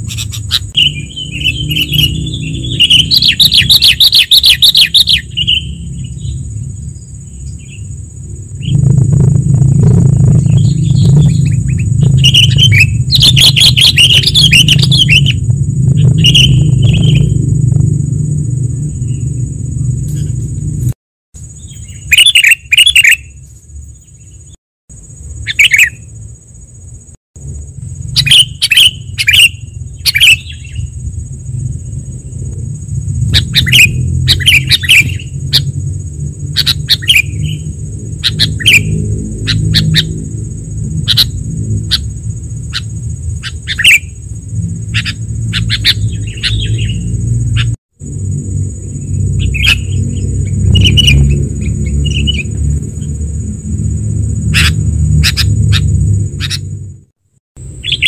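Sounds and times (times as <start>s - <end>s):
bird chirping: 0.0s - 8.0s, 10.0s - 17.4s, 18.8s - 20.5s, 21.4s - 26.2s, 28.0s - 32.4s, 33.3s - 35.8s, 36.5s - 40.3s, 41.0s - 47.8s, 48.8s - 53.2s, 54.4s - 56.8s, 57.8s - 58.0s
steady high whine: 0.0s - 58.0s
low rumble: 5.3s - 21.0s, 29.0s - 43.4s, 44.1s - 57.1s.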